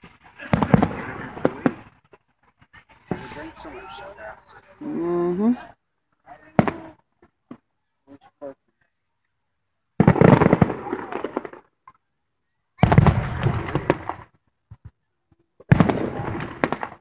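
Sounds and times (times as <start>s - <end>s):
fireworks bursting with crackling: 0.0s - 5.0s, 6.3s - 7.7s, 10.0s - 12.0s, 12.8s - 17.0s.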